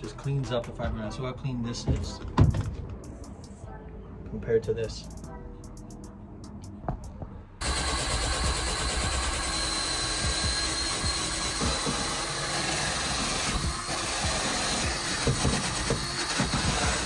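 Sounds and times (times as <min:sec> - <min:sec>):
drill wire brush scrubbing: 0:07.6 - 0:17.0.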